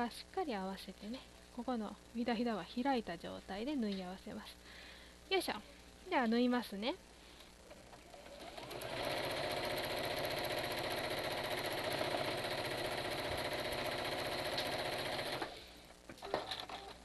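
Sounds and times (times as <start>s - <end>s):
sewing machine running: 8.1s - 15.6s.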